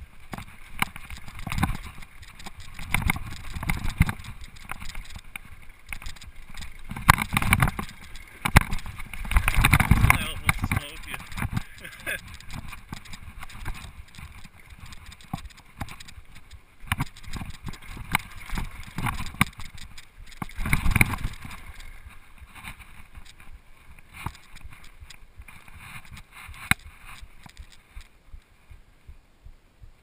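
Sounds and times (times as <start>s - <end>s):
bike tyres rolling on dirt: 0.0s - 28.9s
bike knocking and clattering: 0.2s - 21.8s.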